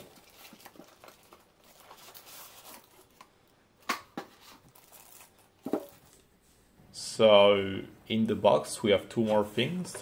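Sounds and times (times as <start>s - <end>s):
plastic bag crinkling: 0.0s - 3.3s, 4.5s - 6.2s.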